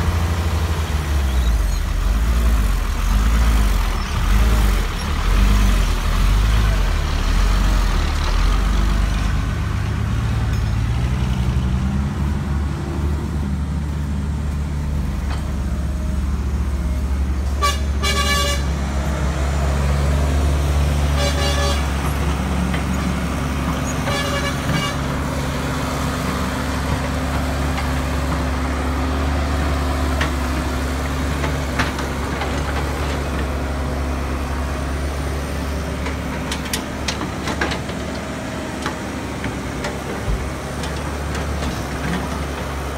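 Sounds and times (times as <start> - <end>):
diesel excavator engine running: 0.0 - 42.9
vehicle horn: 17.5 - 18.8, 21.1 - 22.0, 24.0 - 25.1.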